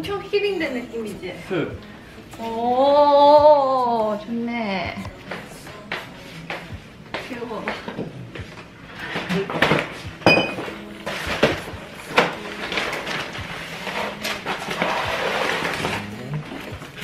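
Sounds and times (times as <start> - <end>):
packaging rustling: 11.1 - 17.0.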